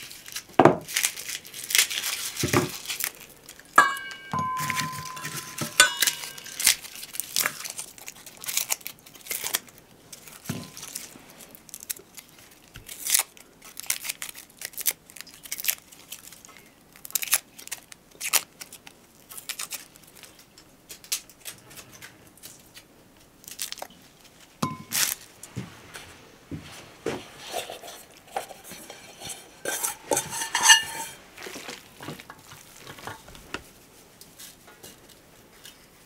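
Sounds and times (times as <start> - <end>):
ringing clink: 3.8 - 6.7, 24.6 - 25.0.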